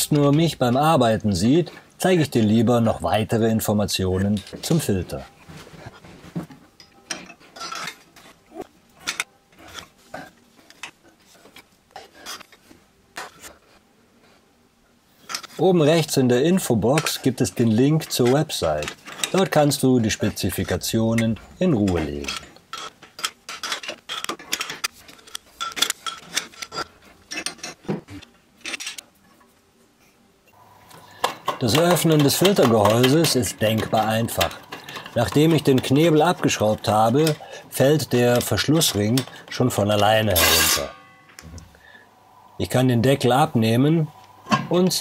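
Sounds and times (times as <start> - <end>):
metal tools clinking on pipes: 6.8 - 8.3, 16.5 - 29.0, 31.1 - 41.4.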